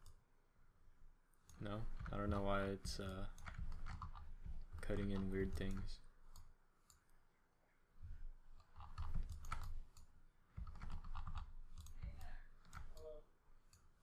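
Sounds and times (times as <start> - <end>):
computer mouse and keyboard clicking: 1.4 - 7.1, 8.5 - 13.1.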